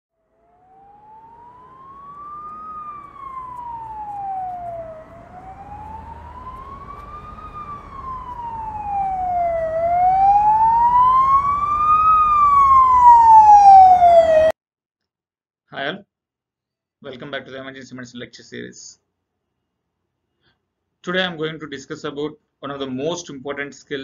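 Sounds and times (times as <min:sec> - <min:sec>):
emergency siren wailing: 0:00.2 - 0:14.6.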